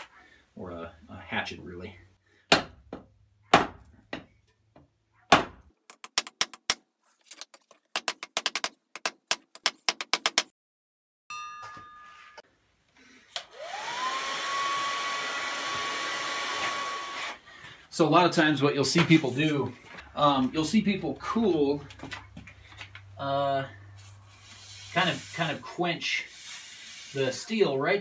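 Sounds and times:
hair dryer whining: 0:13.4 - 0:17.4.

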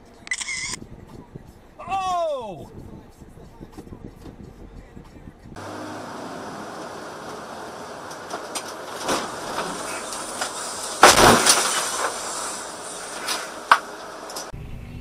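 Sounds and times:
road noise in cab: 0:00.0 - 0:15.0
snow and ice hitting windshield: 0:05.6 - 0:14.5.

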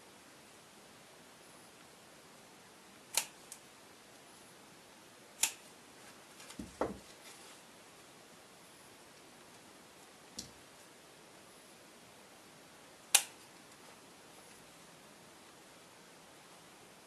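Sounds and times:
fabric rustling and knocking: 0:06.4 - 0:07.5.

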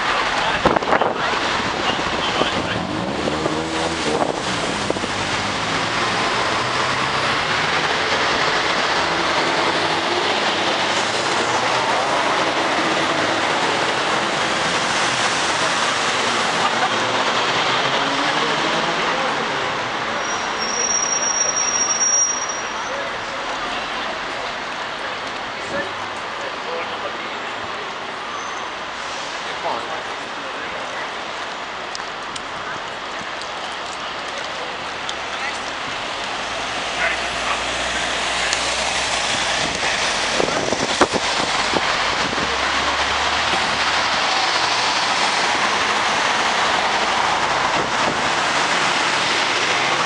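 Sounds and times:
buses and cars driving past: 0:00.0 - 0:50.0
high thin squeal: 0:20.3 - 0:22.9.

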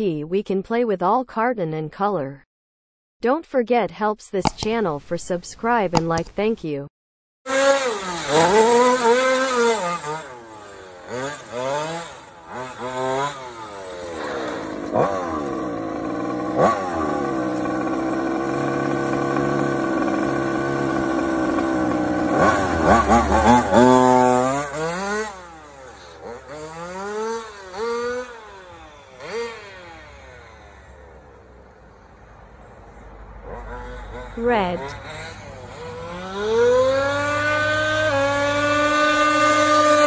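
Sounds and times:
car engine revving: 0:07.5 - 0:40.0.

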